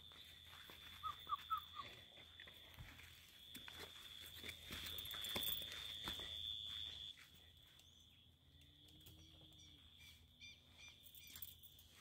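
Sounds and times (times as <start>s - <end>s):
faint bird chirps: 7.6s - 8.3s.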